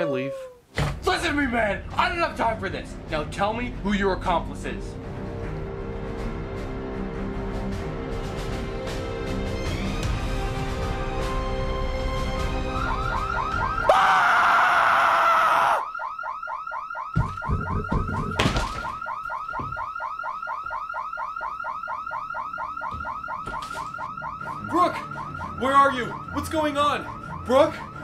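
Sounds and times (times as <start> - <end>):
music: 1.1 - 13.9, 22.4 - 28.0
fire alarm pulsing: 12.6 - 14.0, 15.4 - 28.0
dull thumps: 17.1 - 19.9.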